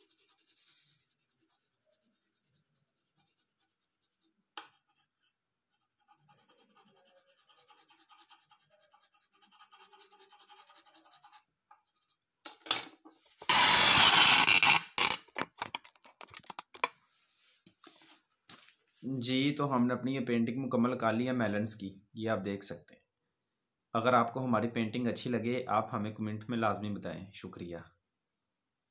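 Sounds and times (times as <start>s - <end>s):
colored pencil scratching on paper: 0.0s - 12.3s, 13.5s - 15.2s.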